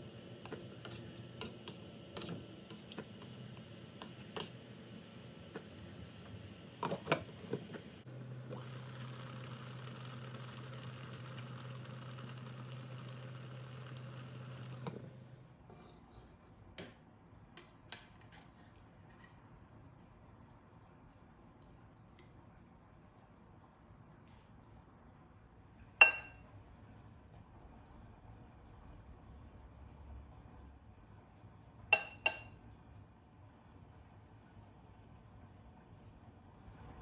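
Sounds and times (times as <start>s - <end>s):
pot bubbling with hiss: 0.0s - 15.3s.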